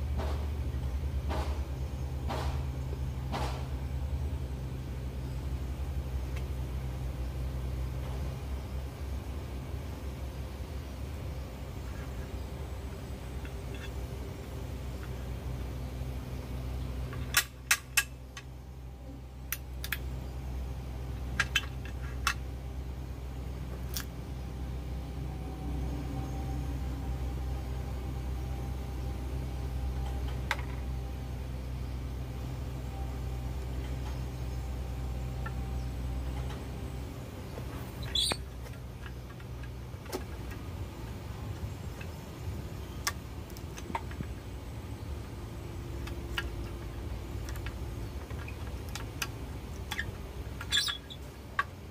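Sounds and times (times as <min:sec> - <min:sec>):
steady low hum: 0:00.0 - 0:51.9
high squeak: 0:38.0 - 0:38.5, 0:50.7 - 0:51.2.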